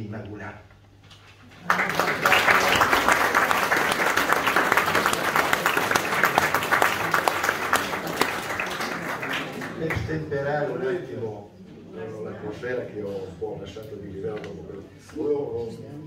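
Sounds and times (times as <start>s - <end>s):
audience applauding: 1.5s - 10.1s.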